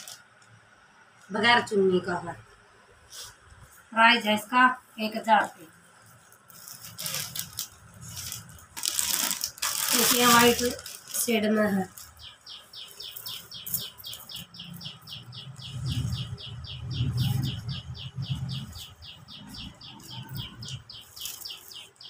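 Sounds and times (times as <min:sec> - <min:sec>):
cotton fabric rustling: 0:04.8 - 0:12.2
rapid high chirps: 0:11.8 - 0:22.0.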